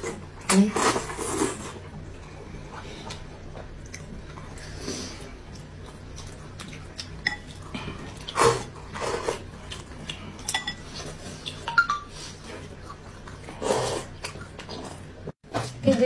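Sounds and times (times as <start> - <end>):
slurping soup: 0.0 - 1.8, 7.8 - 9.5, 13.4 - 15.1.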